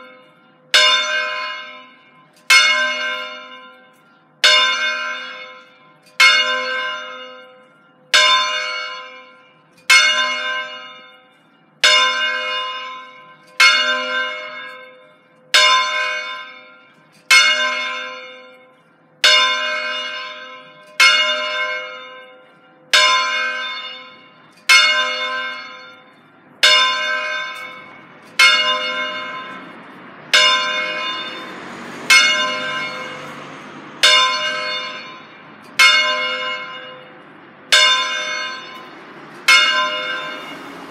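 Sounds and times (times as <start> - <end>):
church bell ringing: 0.0 - 40.9
rushing noise: 27.7 - 40.9.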